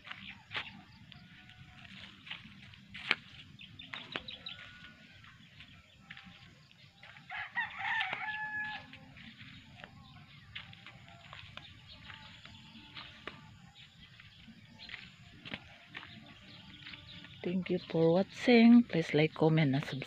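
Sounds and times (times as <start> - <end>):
rooster crowing: 7.3 - 9.0.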